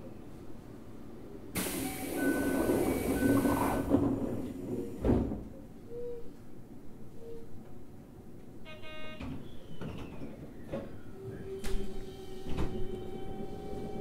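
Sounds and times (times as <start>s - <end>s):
train doors thudding shut: 1.6s - 5.6s, 8.8s - 14.0s.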